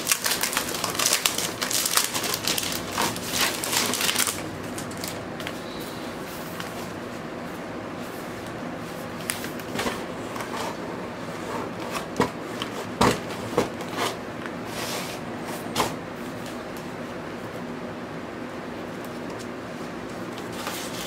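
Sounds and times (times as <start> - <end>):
cardboard and paper rustling: 0.0 - 5.6, 20.3 - 21.0.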